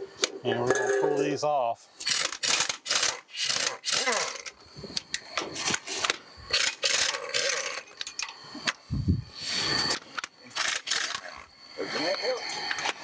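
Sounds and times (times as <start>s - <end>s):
impact wrench bursts: 2.0s - 4.5s.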